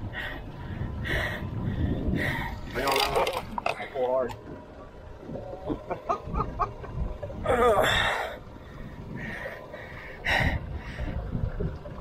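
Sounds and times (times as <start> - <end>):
heavy strained breathing: 0.0 - 2.8, 7.4 - 11.3
wavering groan: 7.4 - 8.4.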